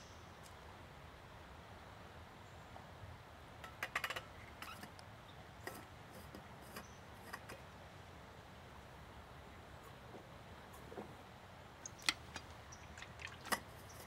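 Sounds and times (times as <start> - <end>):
metal thermos clicking: 11.8 - 13.8.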